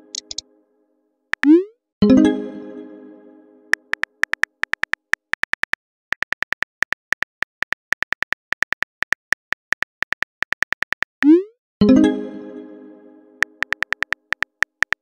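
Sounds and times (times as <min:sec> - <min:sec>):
keyboard typing clicks: 0:00.1 - 0:00.4, 0:03.7 - 0:11.4, 0:13.4 - 0:15.0.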